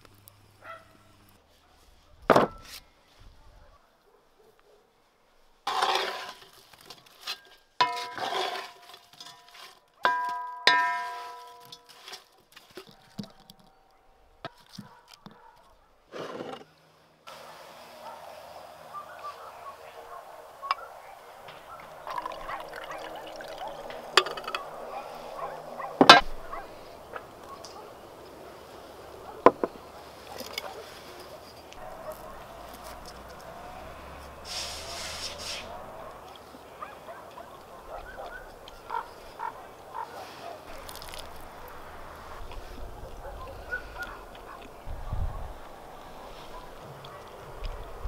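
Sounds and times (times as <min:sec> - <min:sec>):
outdoor background noise: 0:00.0 - 0:48.0
wine pouring into a glass: 0:21.8 - 0:24.7.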